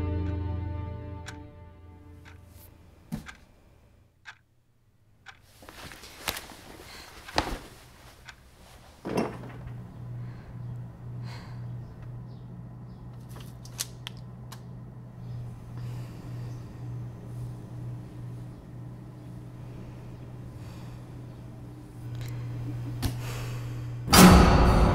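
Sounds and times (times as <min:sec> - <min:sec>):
low pulsing drone: 0:00.0 - 0:02.9, 0:09.4 - 0:24.9
sharp knocks and clicks: 0:03.1 - 0:03.5, 0:04.2 - 0:04.5
sharp hit: 0:24.1 - 0:24.9.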